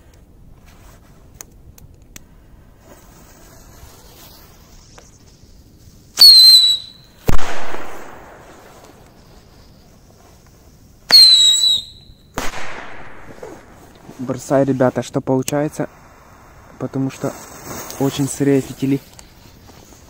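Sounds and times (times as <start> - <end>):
firecracker whistle: 6.1 - 8.9, 11.1 - 12.6
firecracker bang: 6.4 - 8.9, 11.1 - 13.8.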